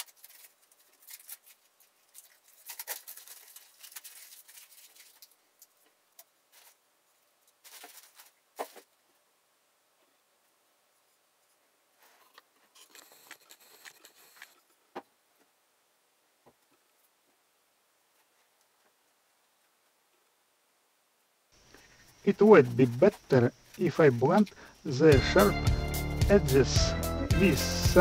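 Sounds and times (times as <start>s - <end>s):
tape crinkling and rustling: 0.0s - 9.0s.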